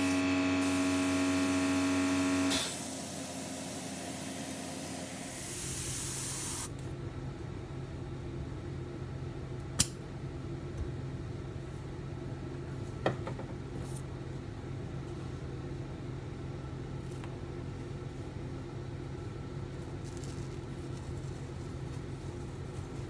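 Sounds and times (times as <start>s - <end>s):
airbrush compressor motor humming: 0.0s - 6.7s.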